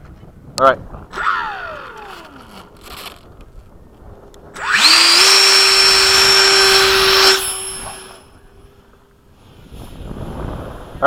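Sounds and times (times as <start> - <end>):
electric fan high whine: 1.1 - 9.4.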